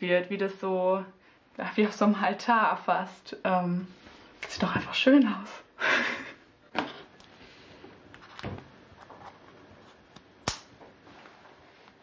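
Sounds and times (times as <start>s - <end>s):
sharp click: 10.4s - 10.7s
soft rustles of handling: 10.8s - 12.0s.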